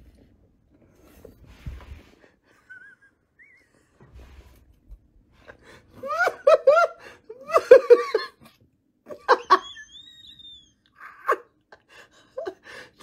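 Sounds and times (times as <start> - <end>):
high steady whistle tone: 3.4 - 4.0, 9.6 - 10.9
person laughing high-pitched: 6.0 - 8.5.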